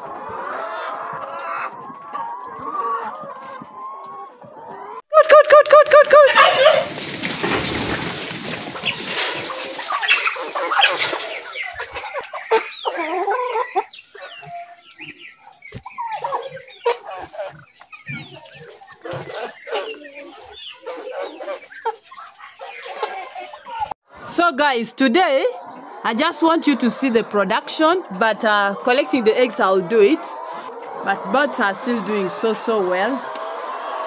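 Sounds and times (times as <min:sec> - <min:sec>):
chickens clucking and cheeping: 0:00.0 - 0:34.0.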